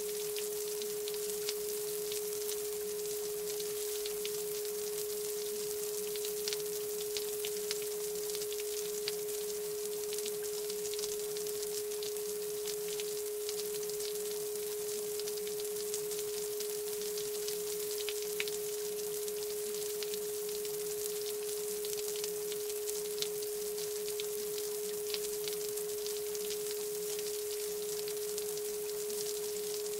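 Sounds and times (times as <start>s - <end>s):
faint high hiss: 0.0s - 0.9s
steady sine tone: 0.0s - 15.4s.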